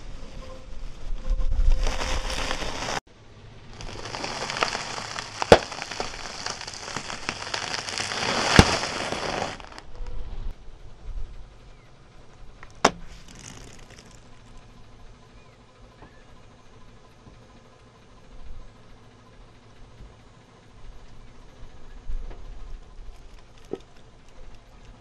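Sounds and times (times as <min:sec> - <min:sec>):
rusks crackling under tyre: 0:00.0 - 0:03.0, 0:03.6 - 0:10.2, 0:12.5 - 0:14.7
plastic wrapper crinkling: 0:01.8 - 0:03.0, 0:03.7 - 0:09.9
loud sharp cracks: 0:03.8 - 0:09.8.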